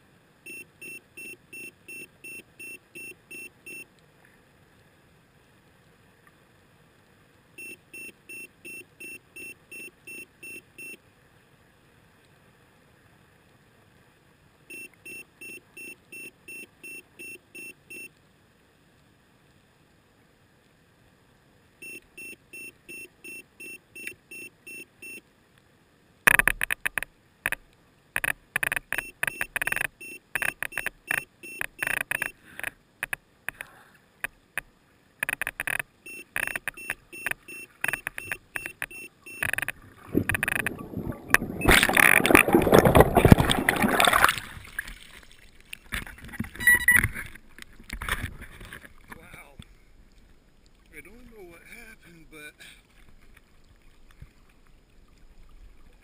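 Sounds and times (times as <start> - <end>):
short electronic beeps: 0.4 - 3.9, 7.6 - 11.0, 14.7 - 18.1, 21.8 - 25.2, 28.2 - 32.4, 35.2 - 43.6, 46.6 - 47.1
water splashing: 26.3 - 56.0.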